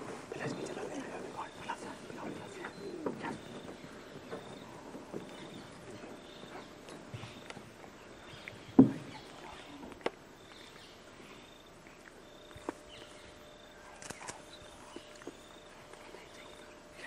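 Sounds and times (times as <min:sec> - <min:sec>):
loud thump: 0:08.8 - 0:09.0
sharp clicks: 0:14.0 - 0:16.4.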